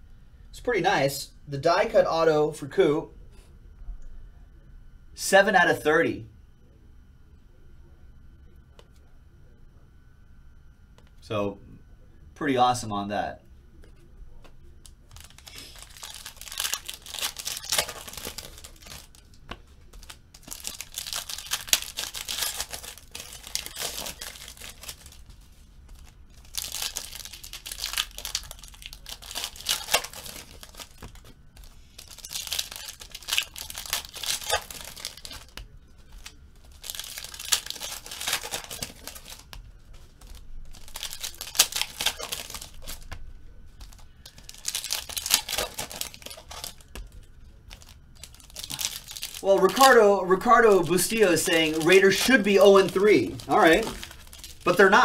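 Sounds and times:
foil wrappers crinkling and tearing: 14.8s - 55.0s.

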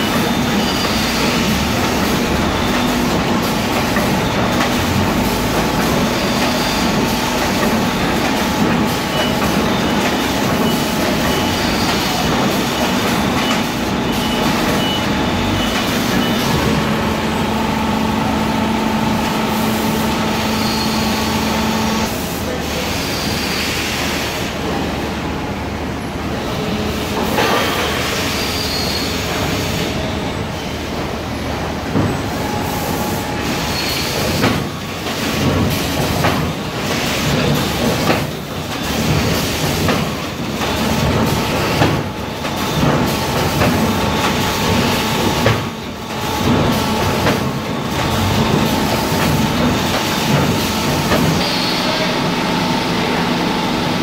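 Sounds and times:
machinery noise with whines: 0.0s - 54.0s
knocks and clatter: 34.2s - 51.4s.

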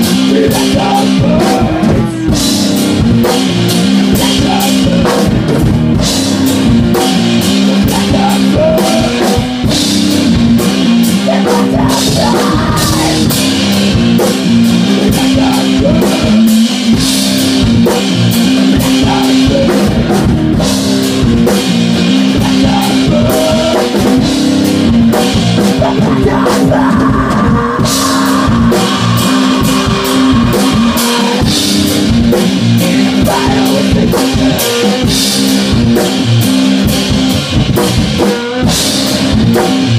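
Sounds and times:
person singing: 0.0s - 5.5s, 6.9s - 9.9s, 10.8s - 20.2s, 22.0s - 24.3s, 25.1s - 35.4s
drum kit: 0.0s - 39.9s
electric guitar: 0.0s - 39.9s.

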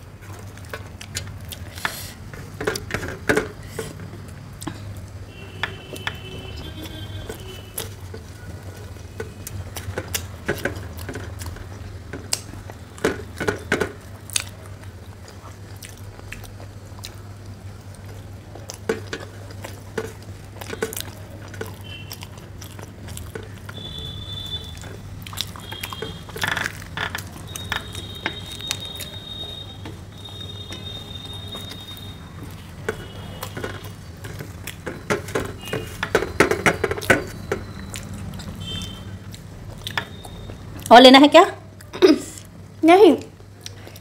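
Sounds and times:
crunchy chewing: 5.8s - 40.9s.

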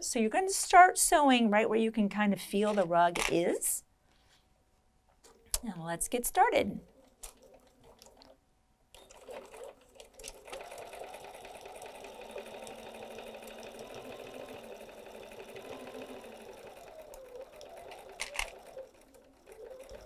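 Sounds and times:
electric sewing machine stitching: 9.0s - 20.0s
sewing machine clicks: 9.0s - 20.0s.

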